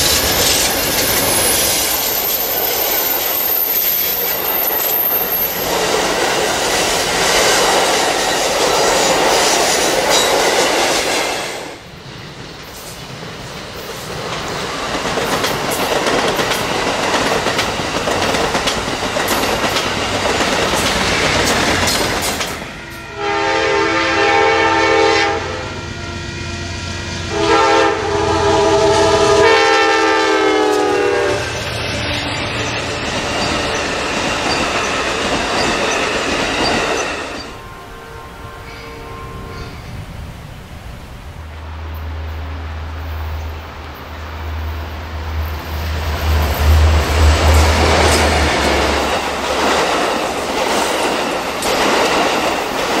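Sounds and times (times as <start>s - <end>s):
train wheels rumbling and clattering: 0.0s - 23.0s, 28.5s - 37.7s, 38.5s - 53.0s
locomotive air horn blasts: 22.7s - 32.3s, 37.6s - 39.9s.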